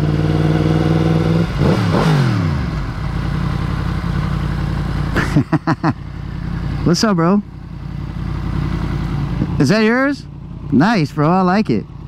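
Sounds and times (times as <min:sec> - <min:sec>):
motorcycle engine revs falling: 0:00.0 - 0:06.8.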